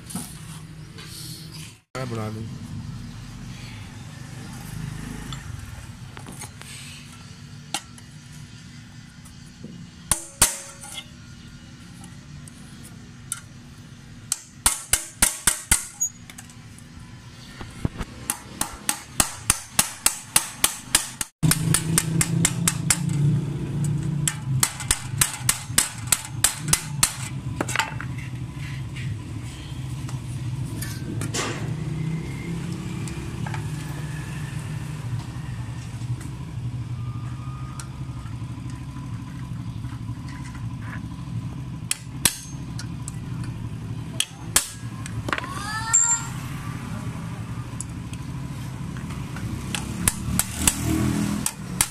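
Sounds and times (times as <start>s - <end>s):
hammer tapping on metal: 18.3s - 23.2s.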